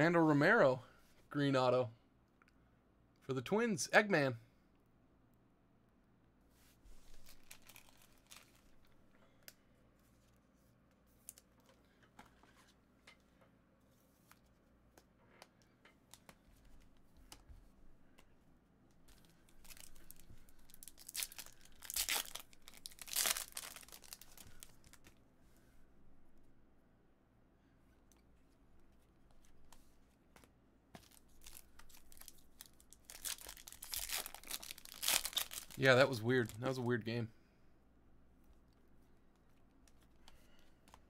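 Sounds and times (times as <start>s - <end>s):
card wrappers tearing and crinkling: 7.2s - 8.8s, 19.1s - 25.1s, 31.0s - 36.8s.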